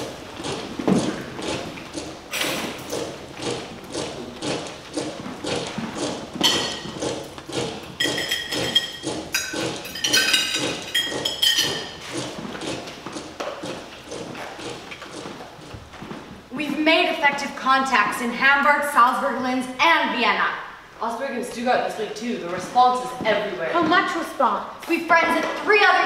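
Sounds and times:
rhythmic knocking: 0.0s - 16.5s.

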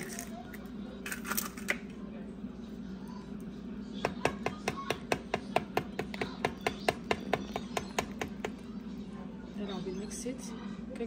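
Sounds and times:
utensil tapping mixing bowl: 4.0s - 8.6s.

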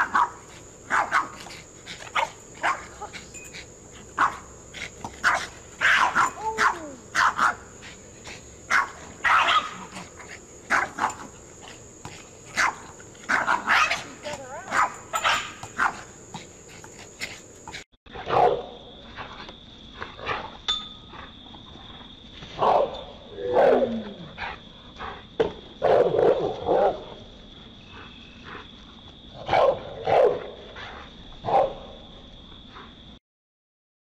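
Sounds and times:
small dogs barking: 0.0s - 11.8s, 12.4s - 17.4s, 18.2s - 18.7s, 22.6s - 24.0s, 25.8s - 27.1s, 29.4s - 30.6s.

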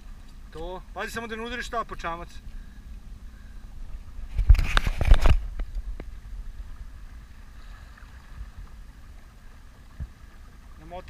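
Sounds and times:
wind rumble on microphone: 2.4s - 10.8s.

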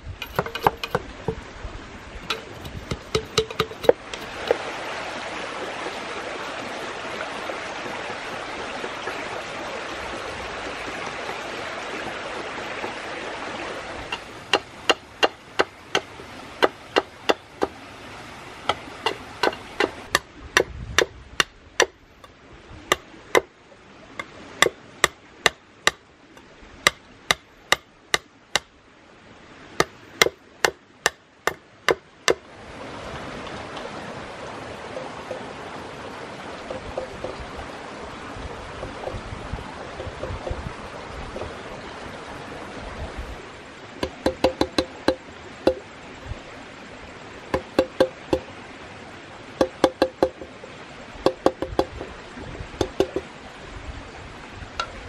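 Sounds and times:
knife chopping bamboo: 0.2s - 1.4s, 2.2s - 4.6s, 14.1s - 17.8s, 18.7s - 22.0s, 22.9s - 23.5s, 24.2s - 26.0s, 29.8s - 32.4s, 44.0s - 45.8s, 47.5s - 48.5s, 49.6s - 50.4s, 52.8s - 53.2s.

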